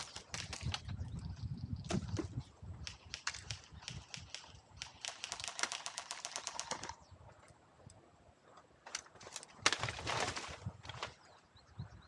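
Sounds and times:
single airsoft gun clicks: 0:02.8 - 0:06.9.

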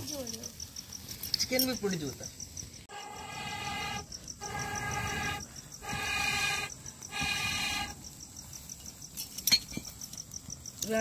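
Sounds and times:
crickets chirping: 0:00.0 - 0:11.0
blowing through a blowpipe: 0:02.9 - 0:08.0.

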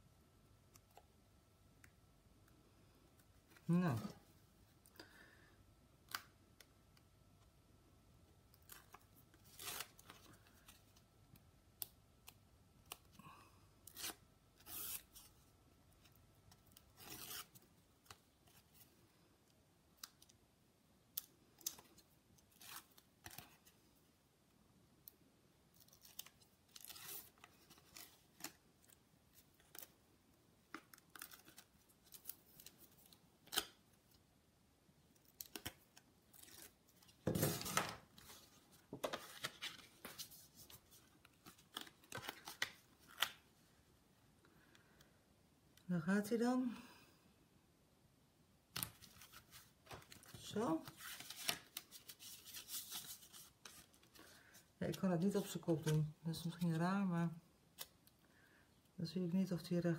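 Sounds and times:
paper rustling: 0:36.3 - 0:43.4, 0:48.8 - 0:56.6.

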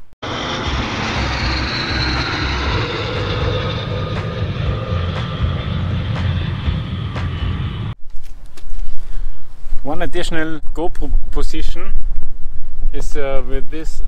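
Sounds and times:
faint high whine: 0:00.2 - 0:14.0
wind buffeting microphone: 0:08.7 - 0:14.0.

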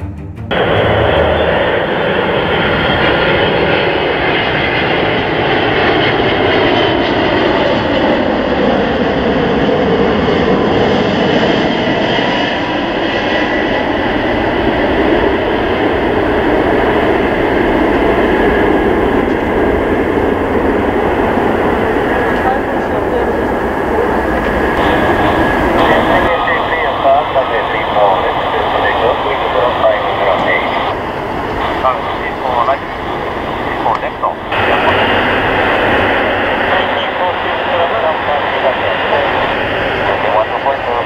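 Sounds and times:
jet engines roaring at takeoff: 0:00.5 - 0:41.0.

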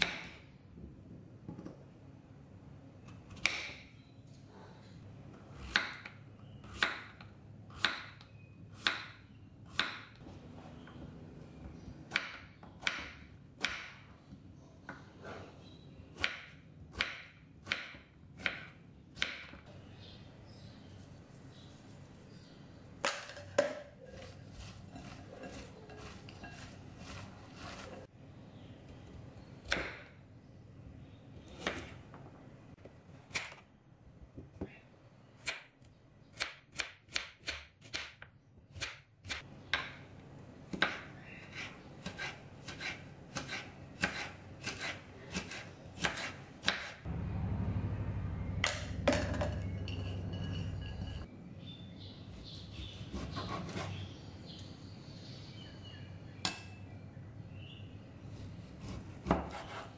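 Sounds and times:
knife slicing carrot on board: 0:40.7 - 0:47.0, 0:58.8 - 0:59.9
steady low hum: 0:47.1 - 0:52.0.

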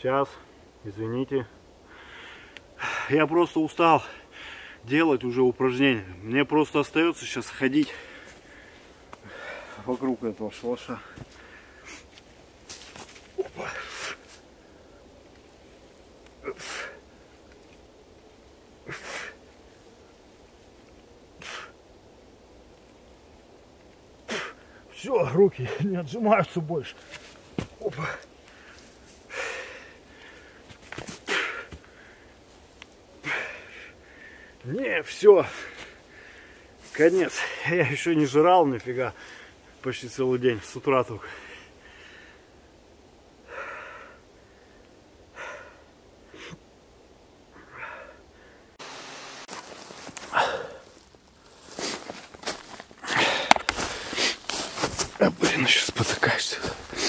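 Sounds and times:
tv static hiss: 0:48.7 - 0:50.0.

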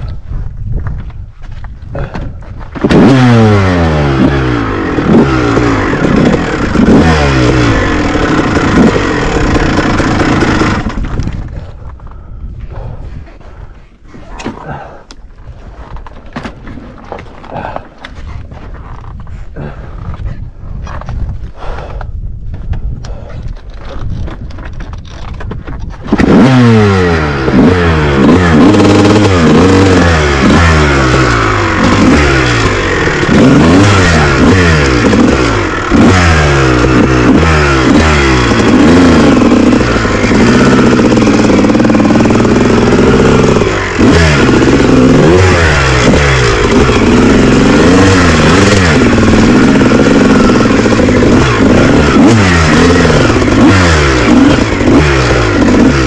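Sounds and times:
dirt bike engine revving: 0:02.7 - 0:11.6, 0:26.0 - 0:56.0.

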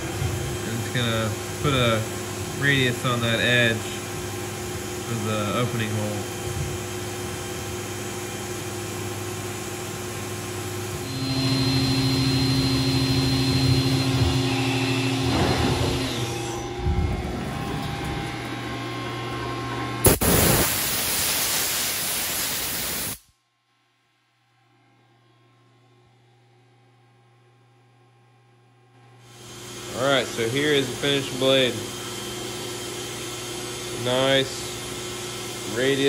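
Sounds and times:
milling machine hum: 0:00.0 - 0:20.6, 0:29.0 - 0:36.0
coolant spraying hiss: 0:20.0 - 0:23.2
loud rushing hiss: 0:20.0 - 0:23.2.

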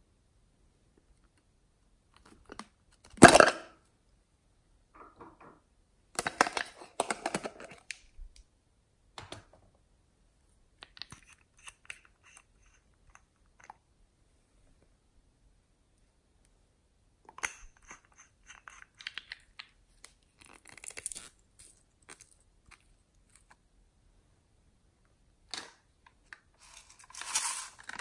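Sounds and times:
plastic clattering: 0:02.2 - 0:03.7, 0:06.2 - 0:08.0
bottle cap twisting clicks: 0:17.4 - 0:19.8.

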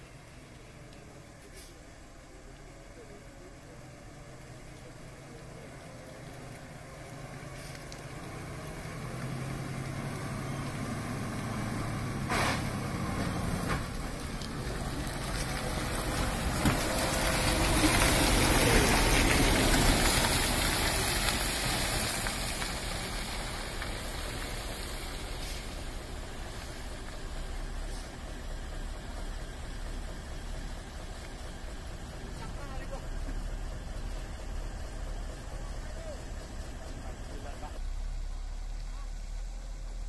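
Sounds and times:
diesel truck passing by: 0:00.0 - 0:40.0
short hiss: 0:01.4 - 0:01.8, 0:07.6 - 0:07.9, 0:12.2 - 0:12.8, 0:25.1 - 0:25.9.

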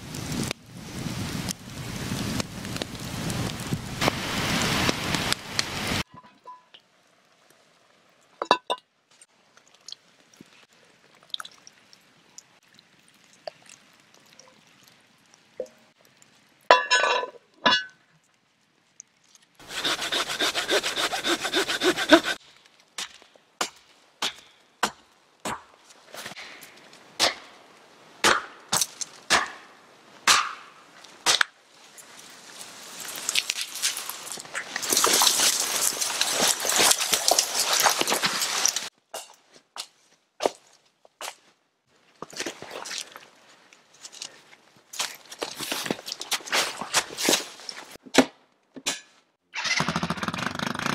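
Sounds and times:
hand saw cutting wood: 0:19.6 - 0:22.4
wood cracking and snapping: 0:33.0 - 0:38.9.

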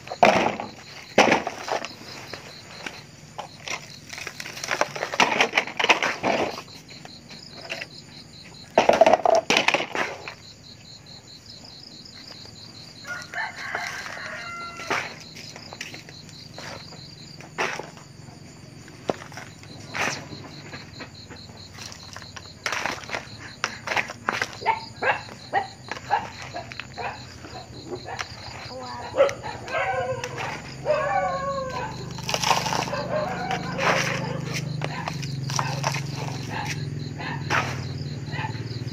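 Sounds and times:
rooster crowing: 0:13.0 - 0:15.3, 0:29.2 - 0:35.0.

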